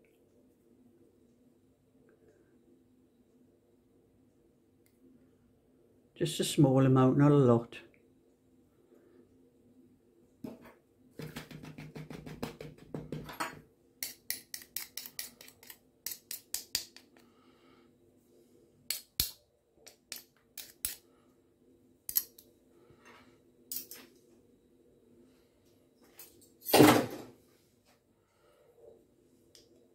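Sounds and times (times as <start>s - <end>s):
spoon scraping in a plastic bowl: 14.5s - 15.8s.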